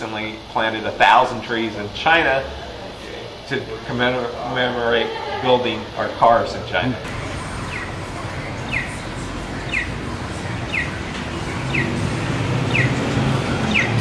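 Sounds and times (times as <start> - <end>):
street traffic noise: 0.0 - 14.0
vehicle engine rumble: 7.0 - 14.0
crossing signal electronic chirps: 7.1 - 14.0.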